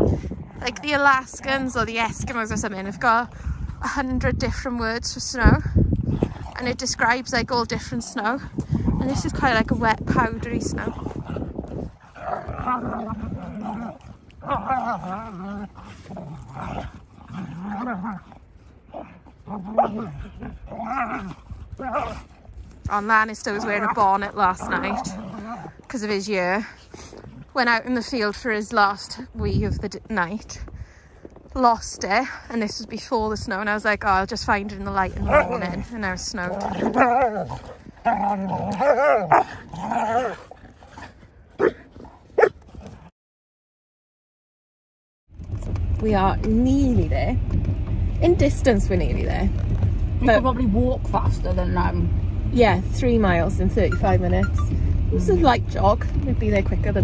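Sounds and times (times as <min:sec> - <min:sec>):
dogs growling: 0:00.0 - 0:04.0, 0:05.5 - 0:28.1, 0:34.4 - 0:43.1.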